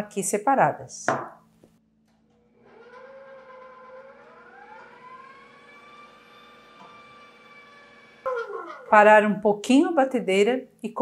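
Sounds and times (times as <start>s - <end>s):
mixer motor whine: 2.1s - 9.0s.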